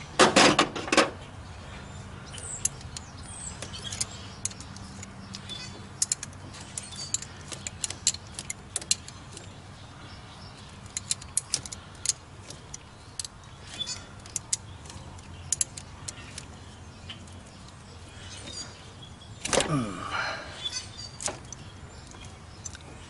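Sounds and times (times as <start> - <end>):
wrench clicking on metal bolt: 2.4 - 9.5, 10.8 - 16.5.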